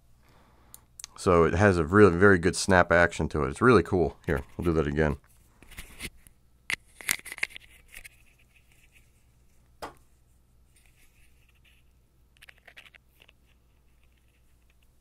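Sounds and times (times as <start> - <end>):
small metal clicks and scraping: 12.4 - 14.9.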